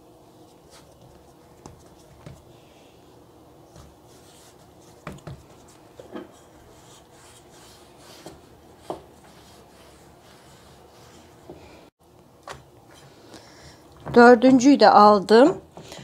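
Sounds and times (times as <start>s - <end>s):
rolling pin on stone countertop: 3.7s - 11.8s.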